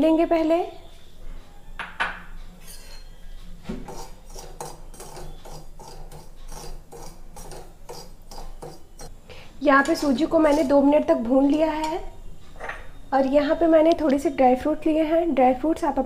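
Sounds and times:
metal spoon scraping pan: 0:02.6 - 0:09.1, 0:09.8 - 0:11.7.

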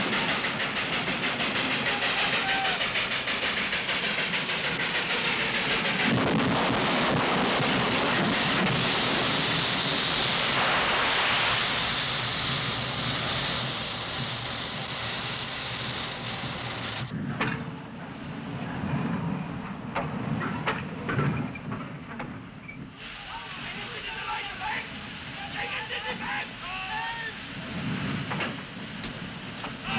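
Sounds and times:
steam hissing: 0:00.0 - 0:17.1, 0:22.8 - 0:29.9
train clicks: 0:00.0 - 0:18.2, 0:27.8 - 0:29.9
locomotive crash rumble: 0:00.0 - 0:26.6.

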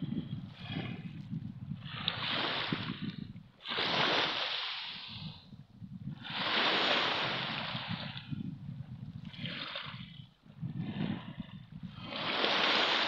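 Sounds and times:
waves washing onto pebbles: 0:12.0 - 0:13.0.

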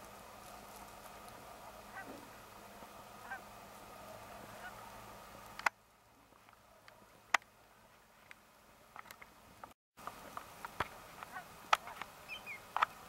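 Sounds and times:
geese honking in flight: 0:01.2 - 0:05.2, 0:11.2 - 0:12.6.

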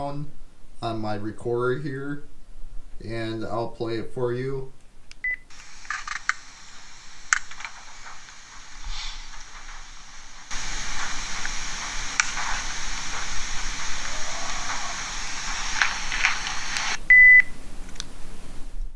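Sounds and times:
recorder playback hiss: 0:00.0 - 0:18.9
recorder beep: 0:05.2 - 0:05.5, 0:16.3 - 0:17.5.

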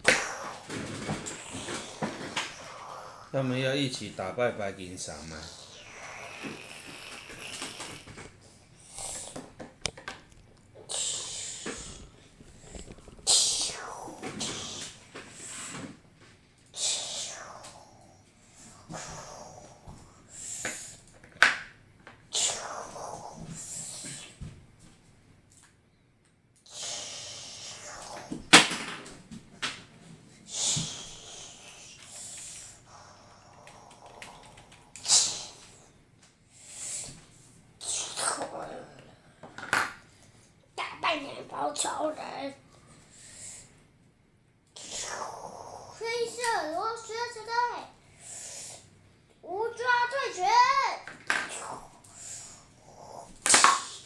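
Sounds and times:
breathy hissing: 0:00.0 - 0:03.5, 0:05.1 - 0:09.4, 0:10.8 - 0:16.0, 0:16.7 - 0:21.0, 0:22.3 - 0:24.4, 0:26.7 - 0:28.5, 0:30.4 - 0:37.2, 0:43.1 - 0:43.8, 0:44.8 - 0:48.9, 0:51.5 - 0:54.0
plastic toys clicking on wood: 0:33.5 - 0:35.0.

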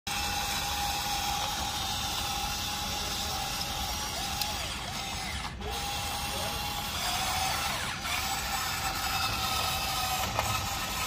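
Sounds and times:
toy electric motors whining: 0:00.1 - 0:11.0.

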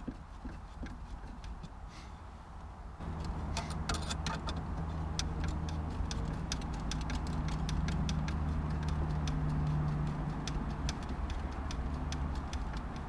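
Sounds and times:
steady low hum: 0:00.0 - 0:13.0
screwdriver clicking: 0:03.2 - 0:13.0.

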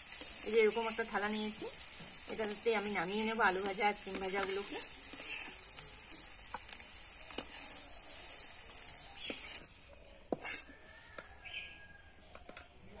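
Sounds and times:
oil sizzling: 0:00.0 - 0:11.7
metal spatula clinking: 0:03.5 - 0:05.8, 0:09.2 - 0:09.7, 0:10.3 - 0:11.3.

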